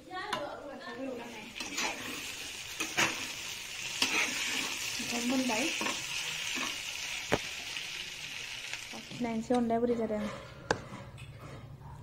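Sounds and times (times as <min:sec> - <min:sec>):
vegetables sizzling in oil: 0:01.0 - 0:09.8.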